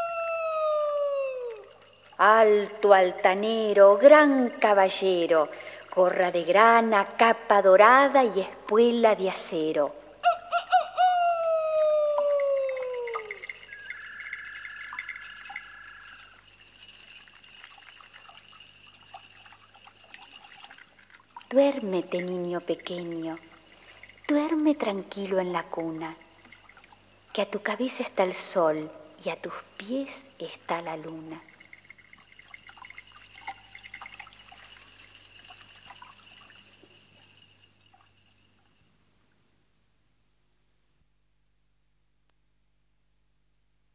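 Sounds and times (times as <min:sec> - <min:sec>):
rooster crowing: 0:00.0 - 0:01.7, 0:10.2 - 0:16.4
thin high tone: 0:00.0 - 0:04.5, 0:10.2 - 0:20.8, 0:29.8 - 0:39.0
drip-like plinks and ticks: 0:01.5 - 0:07.2, 0:12.2 - 0:28.6, 0:29.3 - 0:38.9
steady whistling tone: 0:12.2 - 0:17.4
rapid bird chirps: 0:12.4 - 0:19.8.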